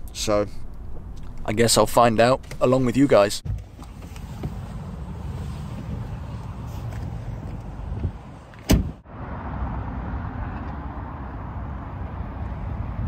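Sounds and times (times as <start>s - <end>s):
traffic rumble: 0.0s - 13.0s
wind: 0.0s - 13.0s
car door thud: 8.6s - 9.0s.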